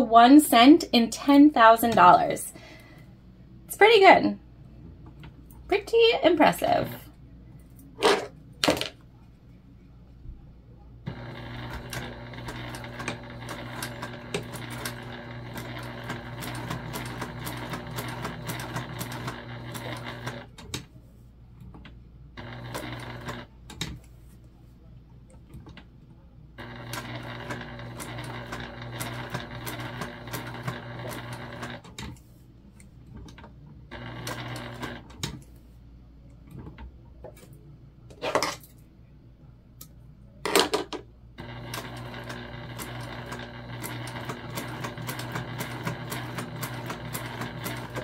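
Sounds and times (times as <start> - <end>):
sewing machine stitching: 11.1 - 20.8, 22.4 - 23.9, 26.6 - 32.2, 33.2 - 35.4, 41.4 - 48.0.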